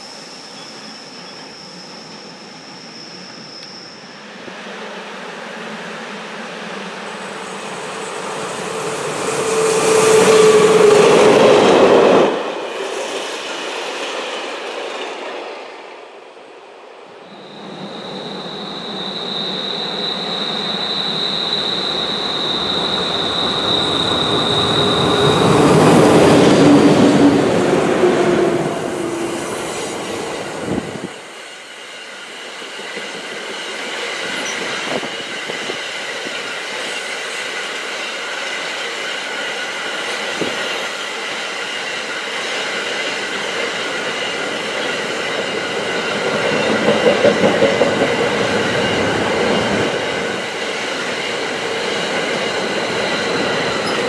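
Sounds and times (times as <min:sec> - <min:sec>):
train wheels squealing: 0:00.0 - 0:15.7, 0:17.0 - 0:54.0
electric locomotive passing: 0:00.0 - 0:54.0.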